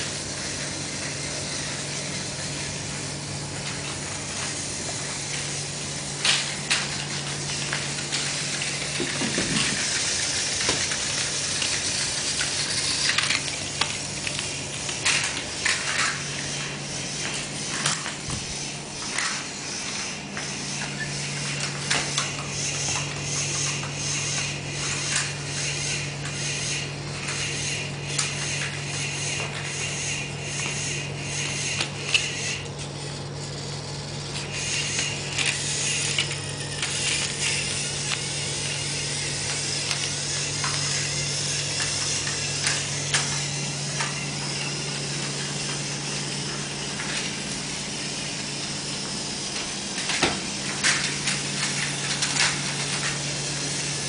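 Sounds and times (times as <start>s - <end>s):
toy train motor whir: 0.0s - 54.0s.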